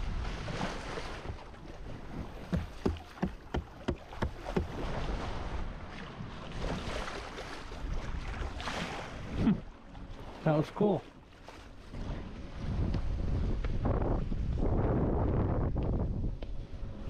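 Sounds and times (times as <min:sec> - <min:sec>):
water rushing along boat hull: 0:00.0 - 0:17.0
short sharp splashes: 0:02.1 - 0:05.6
wind on microphone: 0:11.9 - 0:17.0.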